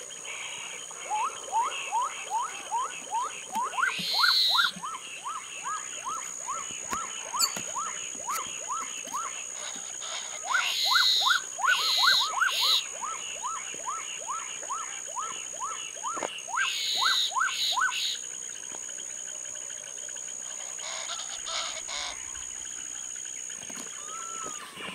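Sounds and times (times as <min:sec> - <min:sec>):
bird harsh rasping calls: 0:03.8 - 0:04.8.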